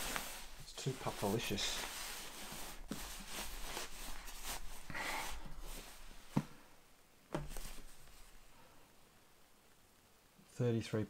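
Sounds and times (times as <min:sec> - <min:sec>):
nylon fabric rustling: 0:00.0 - 0:08.7.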